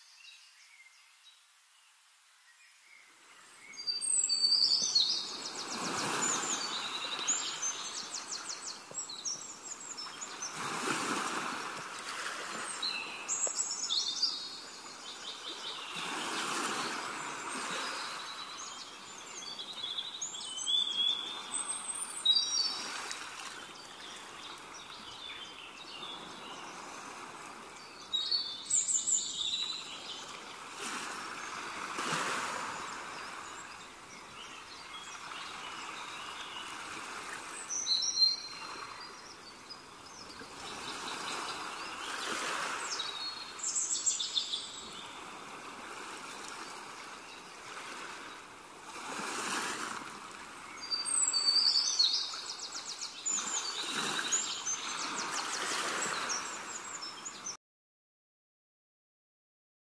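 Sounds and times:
birds chirping and trilling: 2.9s - 10.7s, 12.5s - 23.0s, 27.6s - 30.7s, 32.7s - 45.4s, 50.6s - 57.6s.

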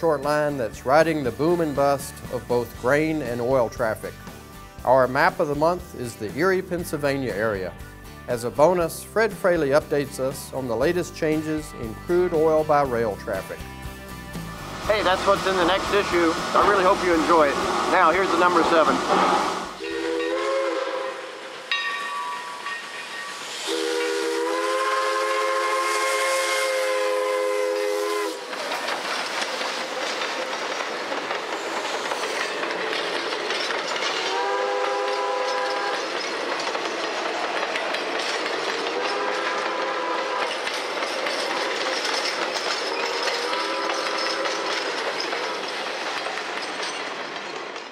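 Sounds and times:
train wheels clattering on rails: 10.5s - 20.3s, 21.0s - 47.9s
steam locomotive whistle blasts: 18.3s - 28.5s, 34.2s - 36.2s, 38.8s - 40.8s, 43.0s - 44.9s.

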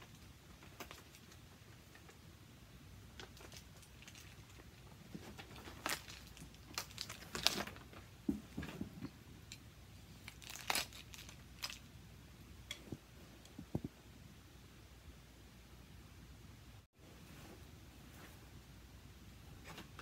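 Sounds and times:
packaging crinkling and rustling: 3.2s - 8.7s, 10.2s - 11.9s.

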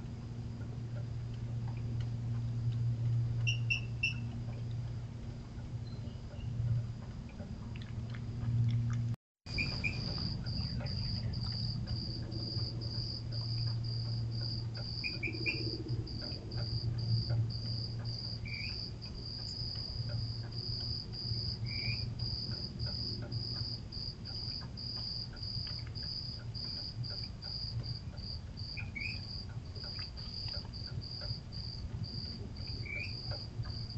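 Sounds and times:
steady low hum: 0.0s - 33.9s
cricket chirping: 3.4s - 4.3s, 9.5s - 33.9s.

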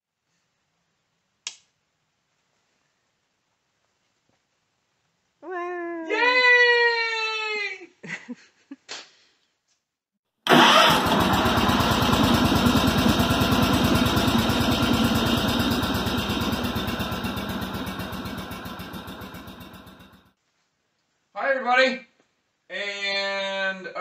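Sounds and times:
garden tractor engine running: 10.5s - 20.3s.

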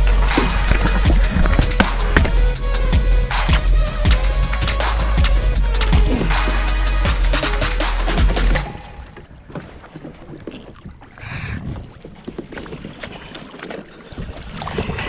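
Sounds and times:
water splashing: 0.0s - 5.0s, 7.8s - 15.0s
wind on microphone: 14.1s - 15.0s.

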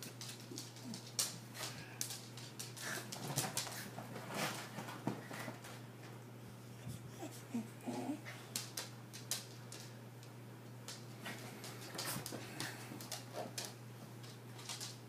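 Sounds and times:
faint whimpers: 6.8s - 8.4s.

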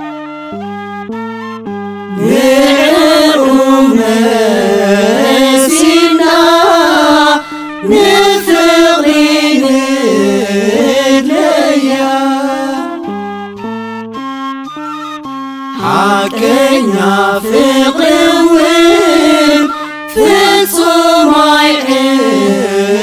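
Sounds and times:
instrumental melody of held notes: 0.0s - 23.0s
choir singing a hymn in unison: 2.2s - 13.0s, 15.8s - 23.0s.

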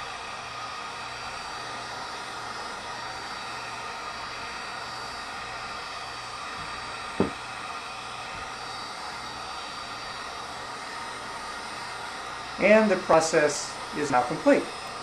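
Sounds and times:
hot-air blower hissing: 0.0s - 15.0s
short thump: 7.2s - 7.4s.

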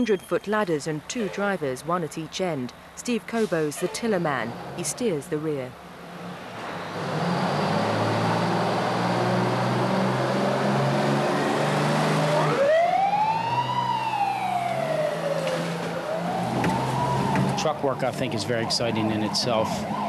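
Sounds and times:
siren wailing: 7.5s - 20.0s
fire truck engine running: 7.8s - 20.0s.

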